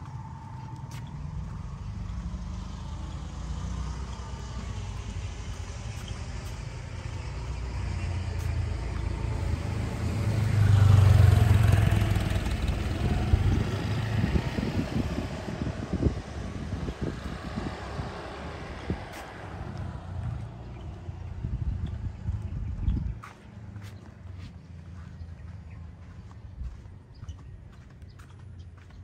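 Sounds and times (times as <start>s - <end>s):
motor vehicle passing: 0.0s - 29.0s.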